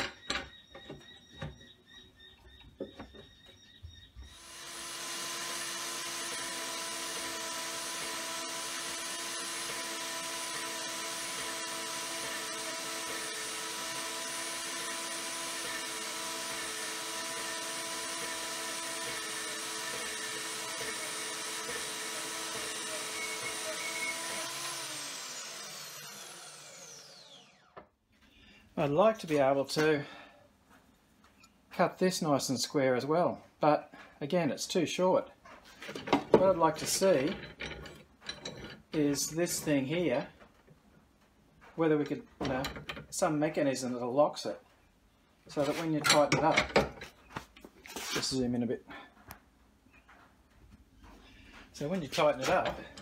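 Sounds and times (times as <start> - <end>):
bandsaw cutting steel: 4.3 - 27.8, 36.4 - 40.1, 45.5 - 46.8, 51.8 - 53.0
motor winding down: 4.3 - 27.8.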